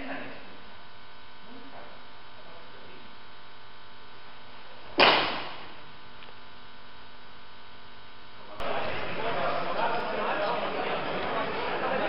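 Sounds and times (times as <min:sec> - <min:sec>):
electrical hum: 0:00.0 - 0:12.0
sharp ringing smack: 0:05.0 - 0:05.6.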